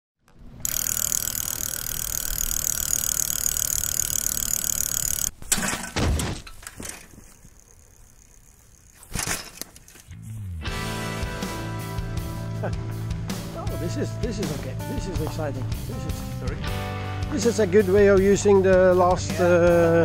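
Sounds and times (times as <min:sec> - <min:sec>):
music: 0:10.1 - 0:20.0.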